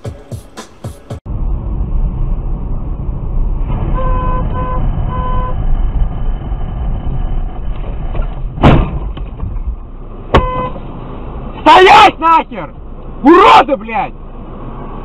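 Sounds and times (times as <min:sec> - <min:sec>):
car road and engine rumble: 0:00.7 - 0:15.0
car crashing into pylon: 0:08.6 - 0:09.5.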